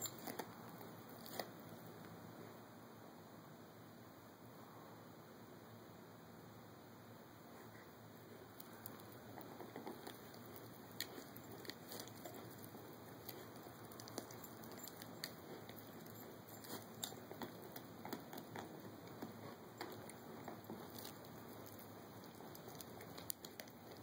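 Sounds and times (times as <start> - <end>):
puppy teeth crunching on a chew: 0.0 - 1.6, 8.3 - 24.0.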